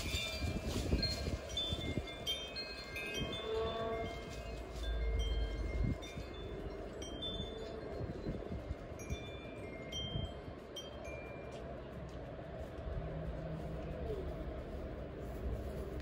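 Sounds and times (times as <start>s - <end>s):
wind chimes ringing: 0.0s - 12.8s
wind rumble on microphone: 0.0s - 16.0s.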